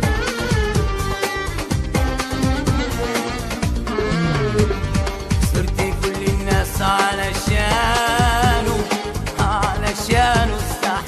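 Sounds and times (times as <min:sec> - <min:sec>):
instrumental melody: 0:00.0 - 0:06.8
bass: 0:00.0 - 0:11.0
steady drum beat: 0:00.1 - 0:11.0.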